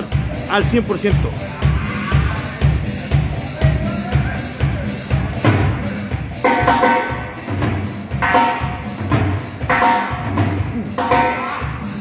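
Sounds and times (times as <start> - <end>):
steady drum beat: 0.0 - 12.0.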